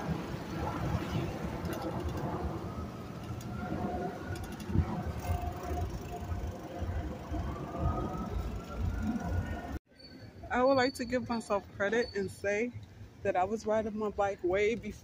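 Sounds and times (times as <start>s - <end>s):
road noise rumble: 0.0s - 9.8s
wind buffeting microphone: 0.0s - 9.8s
light bicycle clicks: 1.6s - 2.3s, 4.3s - 6.6s.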